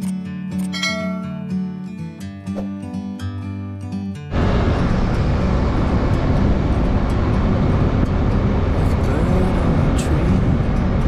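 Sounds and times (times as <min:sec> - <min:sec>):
motorcycle engine running: 0:04.3 - 0:11.0.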